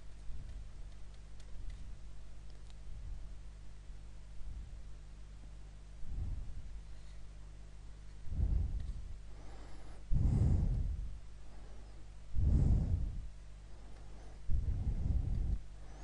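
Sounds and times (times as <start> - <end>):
low electrical hum: 0.0 - 16.0
person breathing heavily: 6.0 - 7.2, 8.2 - 16.0.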